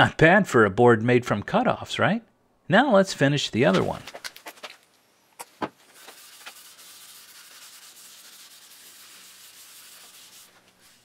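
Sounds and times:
cloth rubbing wood: 5.7s - 11.0s.

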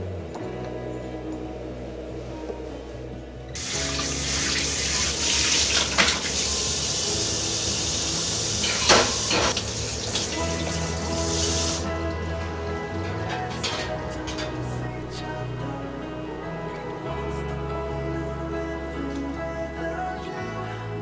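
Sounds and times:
tap water running into sink: 3.6s - 10.4s
hands washing under water: 3.6s - 11.8s.

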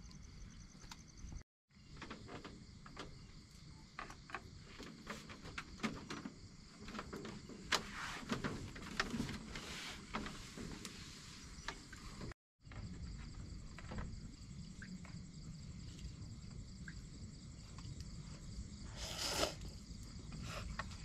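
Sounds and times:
crickets chirping: 0.0s - 21.0s
light clicks and knocks: 1.9s - 11.0s.

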